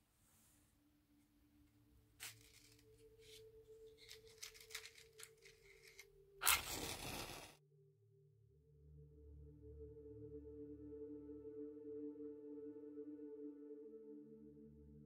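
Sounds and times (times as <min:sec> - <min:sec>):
match struck and hissing: 0:02.2 - 0:03.4, 0:04.0 - 0:07.6
matchbox drawer sliding open: 0:02.2 - 0:07.5
matches rattling in box: 0:02.2 - 0:07.5.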